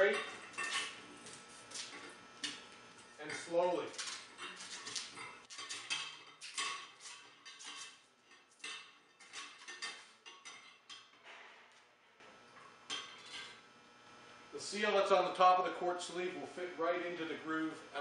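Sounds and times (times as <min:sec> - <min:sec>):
glass clinking and scraping on metal: 0:00.0 - 0:11.2, 0:12.6 - 0:13.6.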